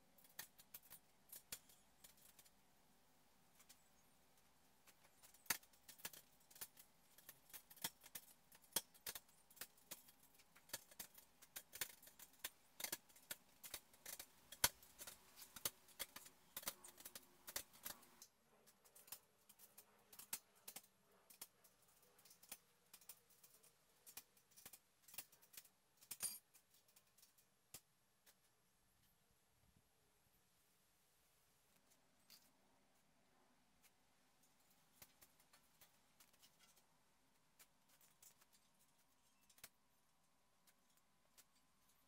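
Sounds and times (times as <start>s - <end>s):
metal nuts clicking and clinking: 18.8s - 27.4s.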